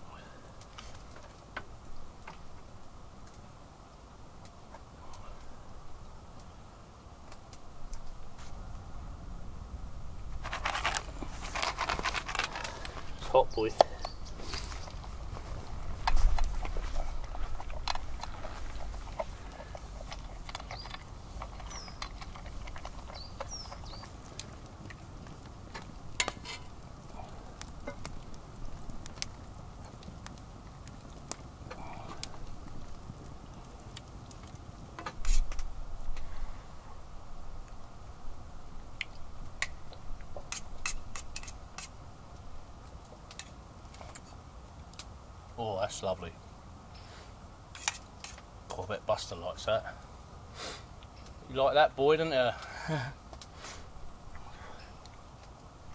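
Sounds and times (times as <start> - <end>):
low steady rumble: 0.0 - 35.0.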